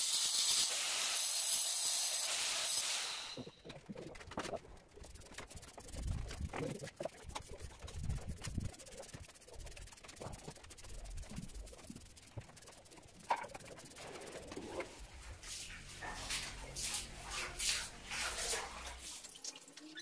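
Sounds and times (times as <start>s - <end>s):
sponge scraping rough cement floor: 8.4s - 19.1s.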